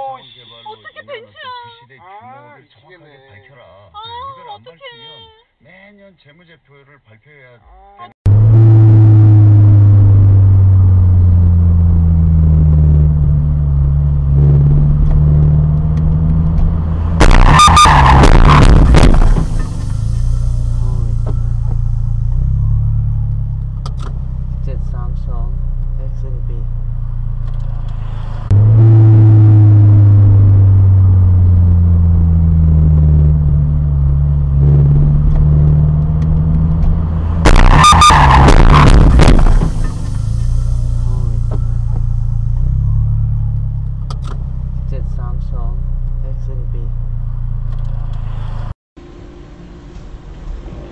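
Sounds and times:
faint falling tone: 0:08.3 - 0:23.8
car cabin engine and road hum: 0:08.3 - 0:50.9.

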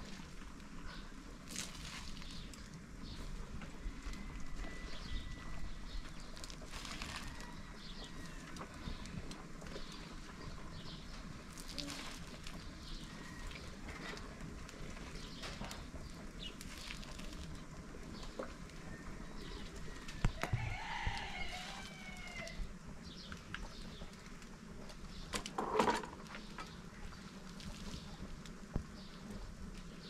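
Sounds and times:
rooster crowing: 0:07.0 - 0:08.6, 0:18.8 - 0:22.7.

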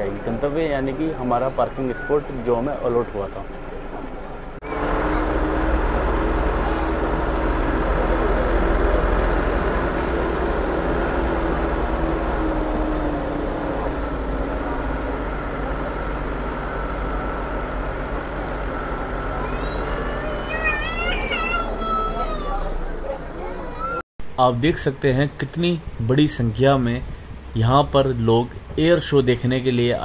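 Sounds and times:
bus engine droning: 0:00.0 - 0:30.0
crowd voices: 0:18.9 - 0:24.0.

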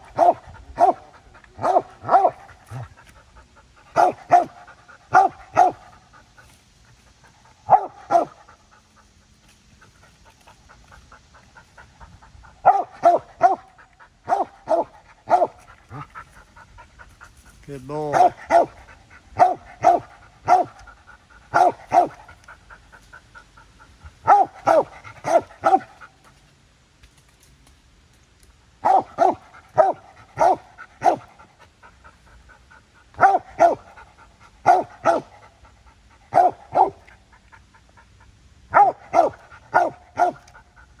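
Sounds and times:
dog barking: 0:00.0 - 0:02.9, 0:03.9 - 0:06.0, 0:07.6 - 0:08.5, 0:12.6 - 0:16.0, 0:18.0 - 0:20.8, 0:21.5 - 0:22.2, 0:24.2 - 0:25.9, 0:28.8 - 0:31.3, 0:33.2 - 0:33.9, 0:34.6 - 0:35.4, 0:36.3 - 0:37.1, 0:38.7 - 0:40.5.

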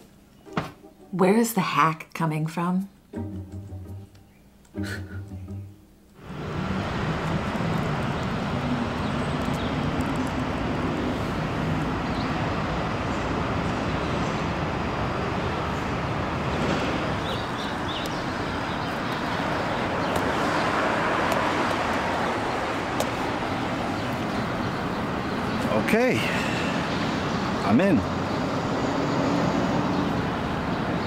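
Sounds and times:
road traffic rush: 0:06.2 - 0:31.0.

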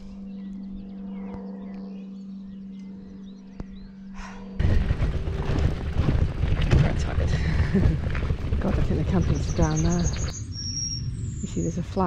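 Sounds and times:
birds chirping faintly: 0:00.0 - 0:04.6, 0:08.6 - 0:12.0
steady low hum: 0:00.0 - 0:12.0
wind rumble on microphone: 0:04.6 - 0:12.0.

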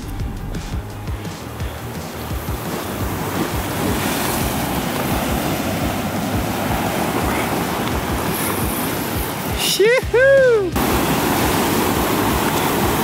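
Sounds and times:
surf breaking over rocks: 0:00.0 - 0:13.0
wind buffeting microphone: 0:01.6 - 0:09.6.

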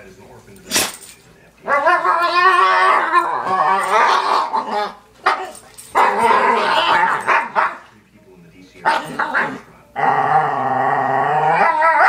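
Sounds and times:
dog howling vocal noises: 0:01.6 - 0:04.9, 0:09.4 - 0:12.0.

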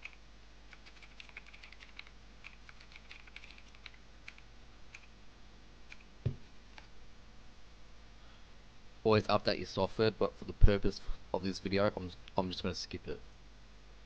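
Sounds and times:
keyboard typing: 0:00.0 - 0:05.1
dull thump: 0:06.2 - 0:06.5.

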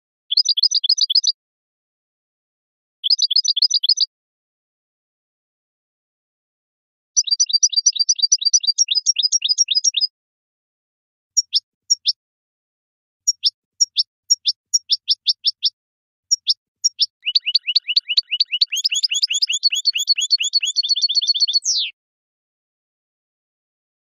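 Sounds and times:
goldfinch song: 0:00.3 - 0:01.4, 0:03.0 - 0:04.1, 0:07.1 - 0:10.1, 0:11.4 - 0:12.2, 0:13.2 - 0:22.0.

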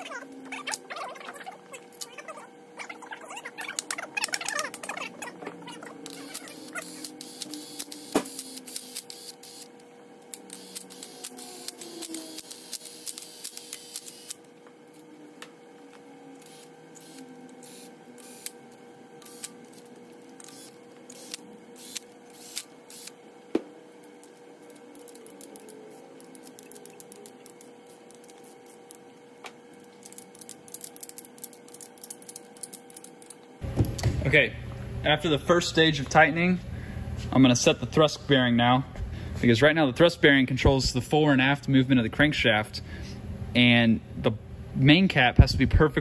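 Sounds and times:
faint steady hum: 0:00.0 - 0:46.0
cordless power tool buzzing: 0:06.0 - 0:09.7, 0:10.4 - 0:14.5, 0:16.4 - 0:18.6, 0:19.2 - 0:23.2.

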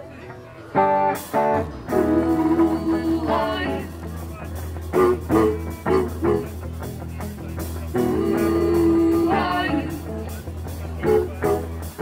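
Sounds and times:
live rock band: 0:00.4 - 0:12.0
person singing: 0:01.9 - 0:04.2, 0:04.9 - 0:06.6, 0:07.9 - 0:10.3, 0:11.0 - 0:12.0.

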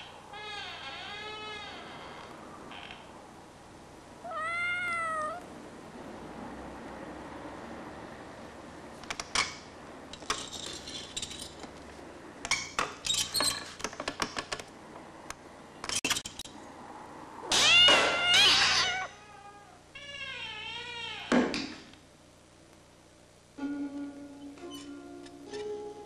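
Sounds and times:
cat meowing: 0:04.2 - 0:05.5, 0:17.5 - 0:21.3.

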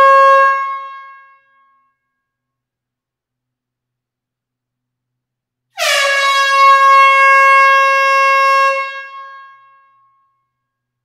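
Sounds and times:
air horn blast: 0:05.8 - 0:09.7.

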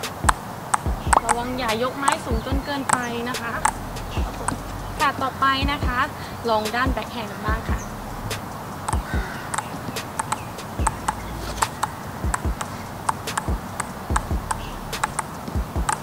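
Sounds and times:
ping-pong balls ticking on paddles: 0:08.8 - 0:16.0.

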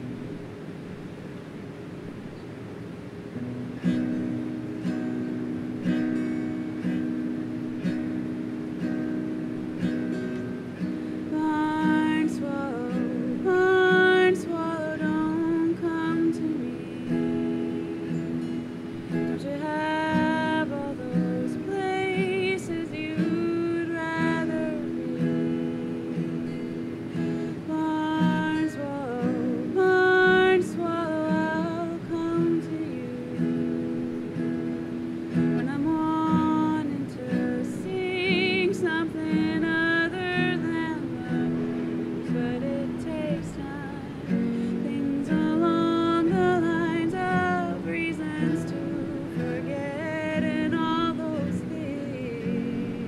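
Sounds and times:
acoustic guitar accompaniment: 0:00.0 - 0:53.0
woman singing: 0:11.2 - 0:34.5, 0:35.3 - 0:53.0.

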